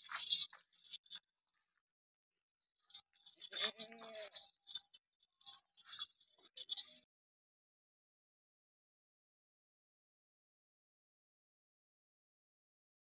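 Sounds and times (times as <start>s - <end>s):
goat bleating: 3.5s - 4.4s.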